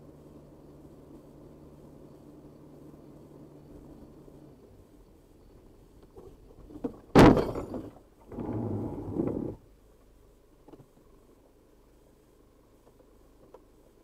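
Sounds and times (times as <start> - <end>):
rough noisy rumble: 0.0 - 13.3
car crash impact: 7.1 - 8.0.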